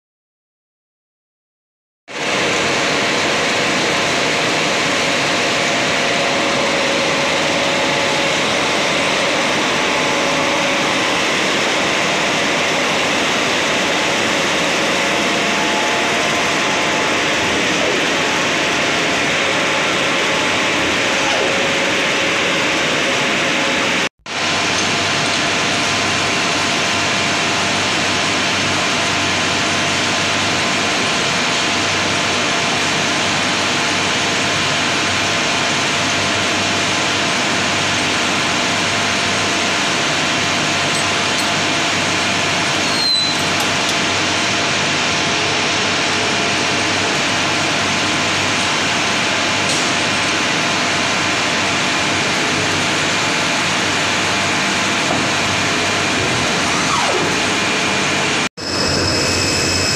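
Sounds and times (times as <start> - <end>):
spinning mill machinery din: 2.2 - 59.9.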